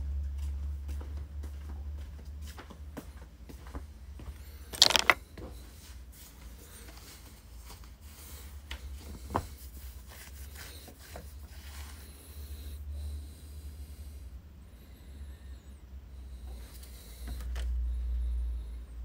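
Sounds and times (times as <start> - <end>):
rattle of clicks: 4.8 - 5.2.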